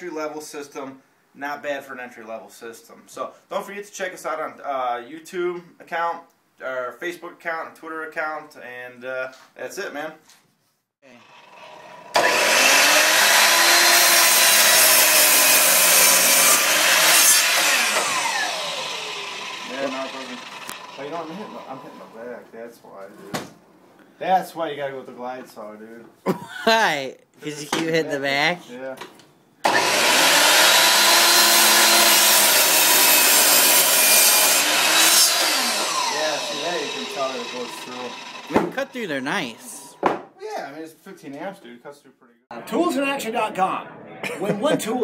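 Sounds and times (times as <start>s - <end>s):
saw motor winding down: 11.2s - 22.0s, 29.7s - 38.7s
miter saw cutting wood: 11.2s - 22.1s, 29.6s - 40.0s.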